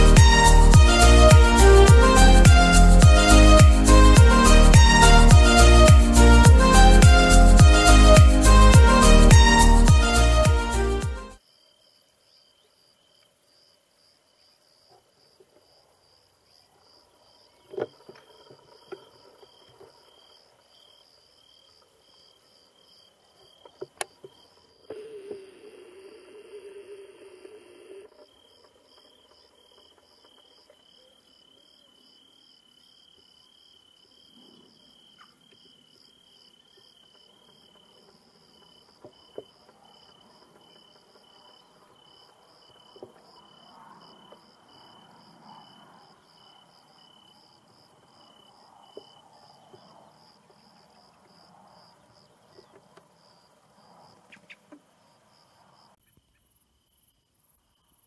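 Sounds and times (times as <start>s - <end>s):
low-pitched cricket trilling: 11.4s - 58.0s
high-pitched cricket chirping: 18.2s - 58.0s.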